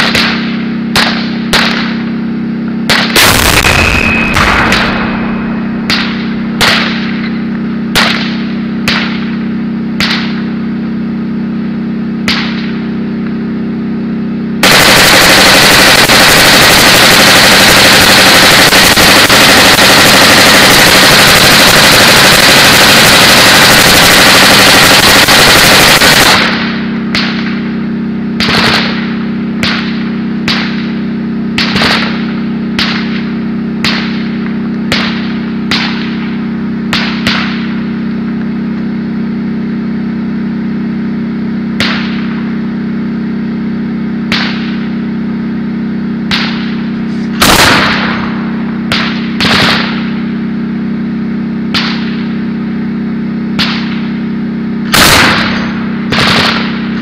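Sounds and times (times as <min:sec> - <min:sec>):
single gunshots: 0:00.0 - 0:02.0, 0:02.8 - 0:09.4, 0:10.0 - 0:10.5, 0:12.2 - 0:12.8, 0:14.6 - 0:27.7, 0:28.3 - 0:36.3, 0:36.9 - 0:37.8, 0:41.8 - 0:42.4, 0:44.3 - 0:44.8, 0:46.2 - 0:50.1, 0:53.6 - 0:54.0, 0:54.9 - 0:57.0
machine-gun fire: 0:00.0 - 0:10.7, 0:12.2 - 0:13.0, 0:14.6 - 0:39.3, 0:41.8 - 0:42.4, 0:43.8 - 0:45.3, 0:46.2 - 0:50.4, 0:53.6 - 0:54.1, 0:54.8 - 0:57.0
tank engine running: 0:00.0 - 0:57.0.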